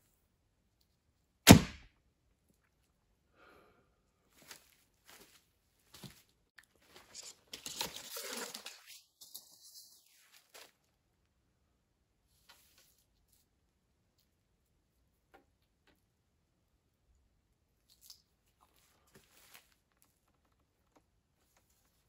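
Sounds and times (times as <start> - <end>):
arrow striking target: 1.5 - 1.9.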